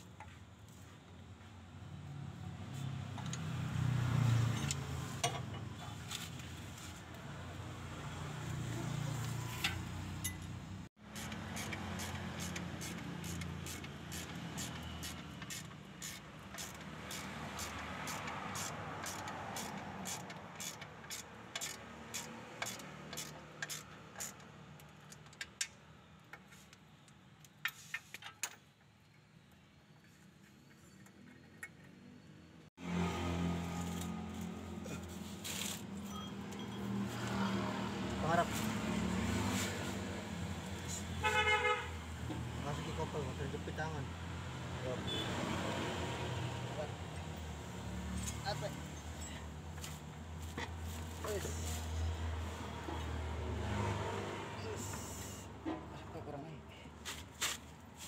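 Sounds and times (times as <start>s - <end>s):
ratchet wrench clicking: 11.1s - 25.7s.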